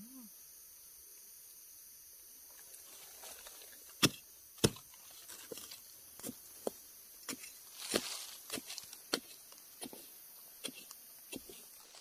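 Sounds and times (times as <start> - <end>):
spade chopping into ground: 3.9 - 11.7.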